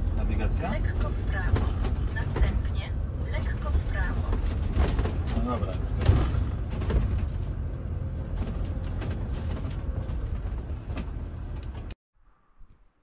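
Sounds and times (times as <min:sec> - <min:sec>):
engine and road rumble: 0:00.0 - 0:12.0
interior rattles and creaks: 0:00.0 - 0:12.0.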